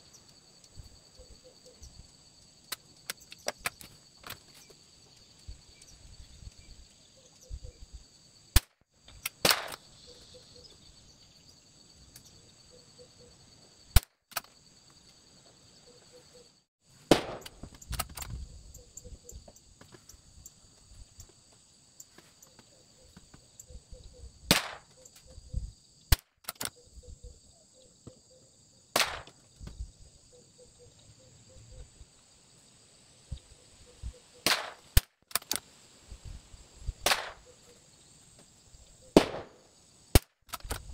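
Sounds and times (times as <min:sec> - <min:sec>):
rifle shots: 0:17.1 - 0:17.7, 0:24.5 - 0:24.9, 0:29.0 - 0:29.3, 0:37.0 - 0:37.5, 0:39.2 - 0:39.6
rifle clicks and rattles: 0:17.4 - 0:18.4, 0:26.1 - 0:26.8, 0:34.8 - 0:35.7, 0:40.2 - 0:40.9.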